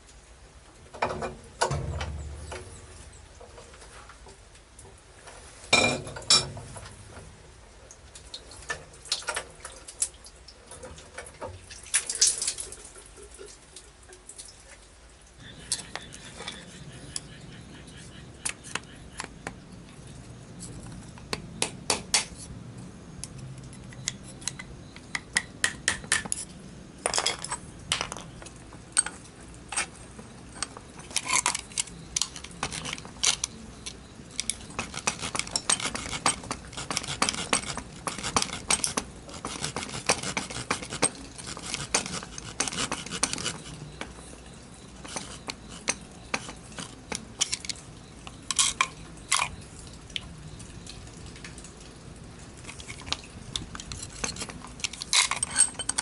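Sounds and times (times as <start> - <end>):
metal scraping: 34.4 - 44.3, 45.0 - 47.8, 52.7 - 56.0
tools clinking on metal: 52.7 - 56.0.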